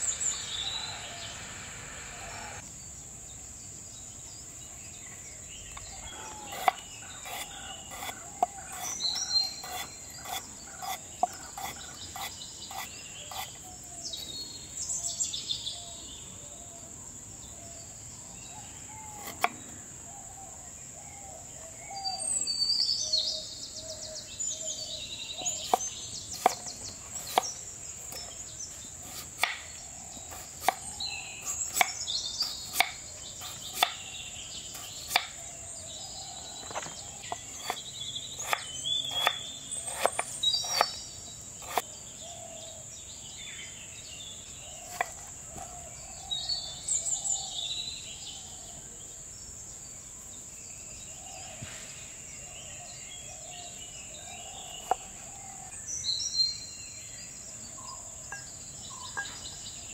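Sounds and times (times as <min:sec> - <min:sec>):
birds chirping: 0:00.0 - 0:03.0, 0:04.1 - 0:16.6, 0:17.6 - 0:49.9, 0:50.6 - 0:59.9
high insect drone: 0:00.0 - 0:04.6
knife chopping on wooden board: 0:09.6 - 0:13.5, 0:25.6 - 0:27.5, 0:29.0 - 0:29.6, 0:30.3 - 0:34.0, 0:36.8 - 0:37.8, 0:38.4 - 0:41.0, 0:41.6 - 0:41.8.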